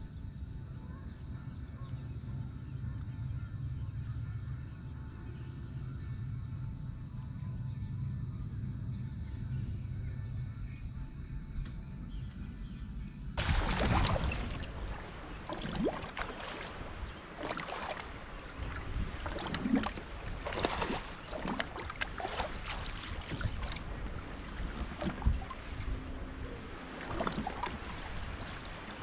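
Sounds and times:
low hum: 0.0s - 29.0s
water splashing around boat: 13.4s - 29.0s.

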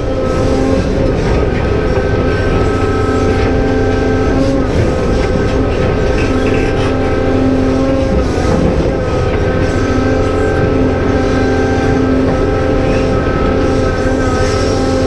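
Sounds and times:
excavator diesel engine: 0.0s - 15.0s
hydraulic pump whine: 0.0s - 15.0s.

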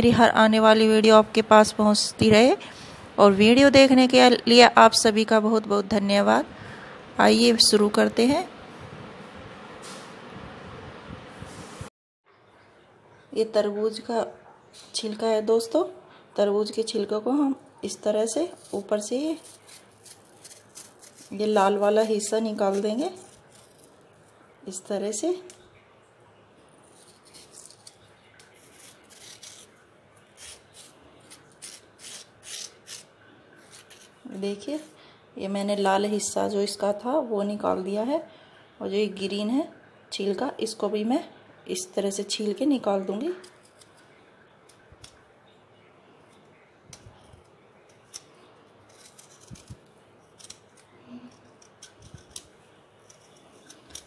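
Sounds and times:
knife scraping watermelon rind: 18.3s - 24.4s, 26.8s - 35.0s, 43.4s - 44.2s, 47.0s - 54.0s.

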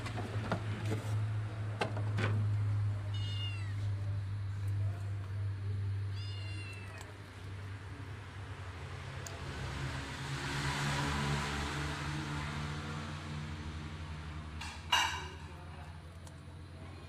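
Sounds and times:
cat meowing: 3.0s - 4.0s, 6.0s - 7.1s.

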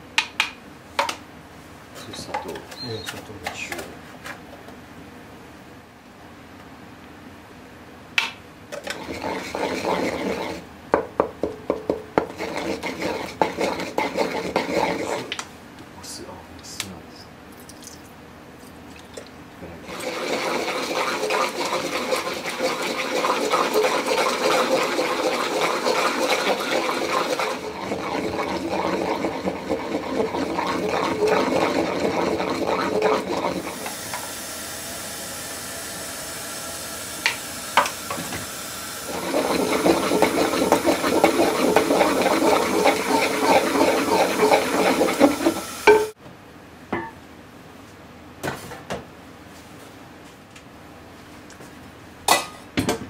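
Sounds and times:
pestle grinding in a mortar: 8.8s - 15.3s, 19.9s - 33.8s, 39.1s - 46.1s.

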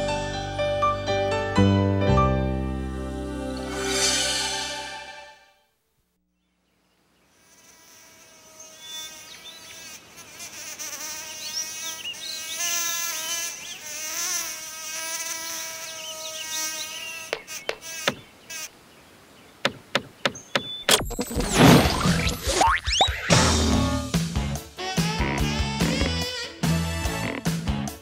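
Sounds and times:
cartoon bee buzzing: 7.4s - 18.7s, 21.0s - 27.8s.

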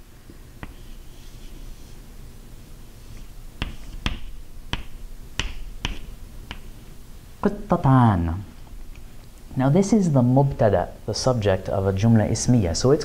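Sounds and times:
chalk tapping on blackboard: 0.6s - 2.0s, 3.0s - 6.8s.

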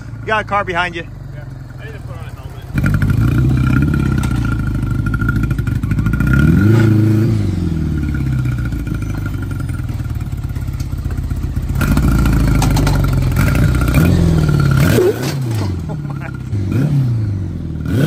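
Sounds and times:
vehicle engine running and revving: 0.0s - 18.0s
rattle: 2.7s - 6.5s, 8.0s - 16.3s.

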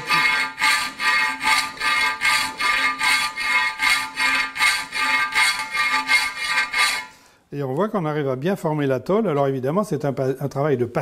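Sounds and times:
file rasping on steel: 0.0s - 7.2s.

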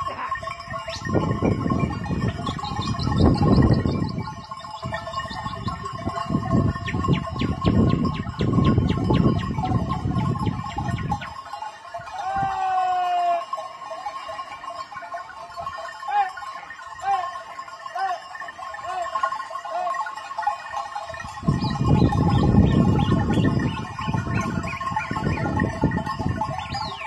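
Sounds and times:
sheep and goats bleating: 12.0s - 13.6s, 16.0s - 20.1s.

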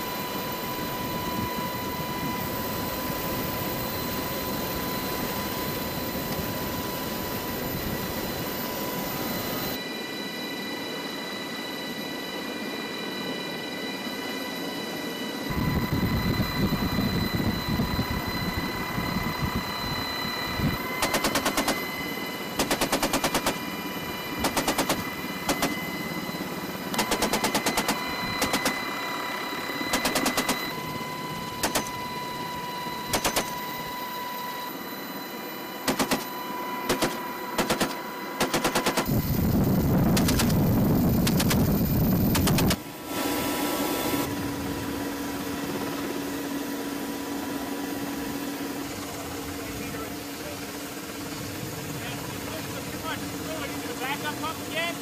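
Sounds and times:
helicopter cabin whine: 0.0s - 55.0s
machine gun bursts: 21.0s - 21.8s, 22.6s - 23.6s, 24.4s - 25.8s, 27.0s - 28.8s, 29.9s - 30.6s, 31.6s - 31.9s, 33.1s - 33.5s, 35.9s - 36.3s, 36.9s - 39.2s, 40.2s - 40.6s.

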